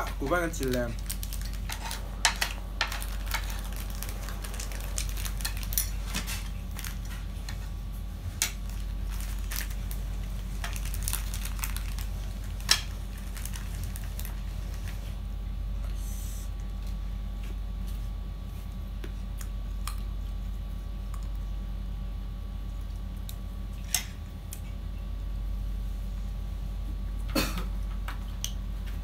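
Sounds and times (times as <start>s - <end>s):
steady low hum: 0.0s - 29.0s
plastic bag crinkling: 0.2s - 7.7s, 8.3s - 15.1s.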